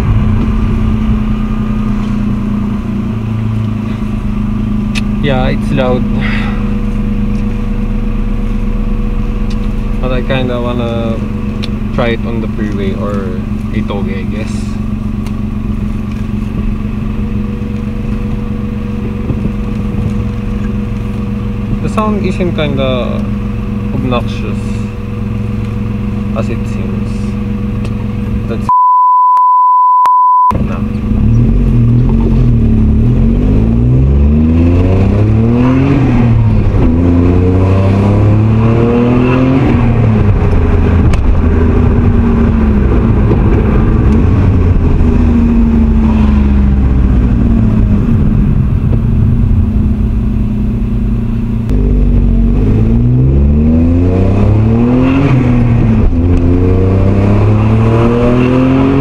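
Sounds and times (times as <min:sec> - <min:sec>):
car engine accelerating: 0:00.0 - 0:28.7, 0:30.5 - 0:59.0
electronic beep tone: 0:28.7 - 0:30.6.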